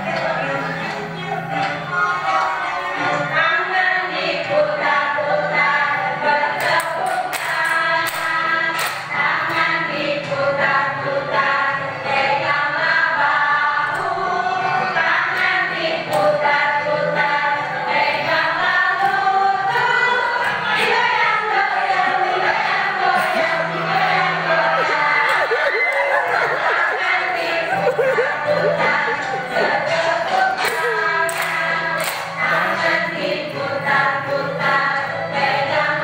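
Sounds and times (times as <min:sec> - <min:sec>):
many voices singing together: 0:00.0 - 0:36.0.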